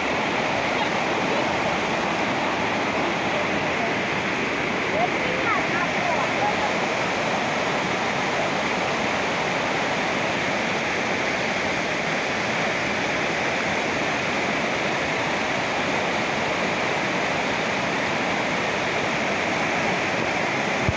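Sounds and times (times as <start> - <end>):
waterfall rushing over rocks: 0.0 - 20.9.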